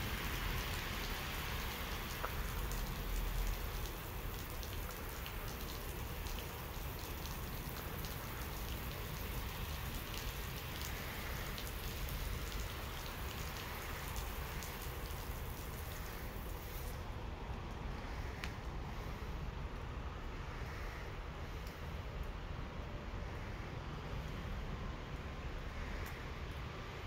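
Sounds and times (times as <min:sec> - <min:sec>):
water spraying on wet pavement: 0:00.0 - 0:27.0.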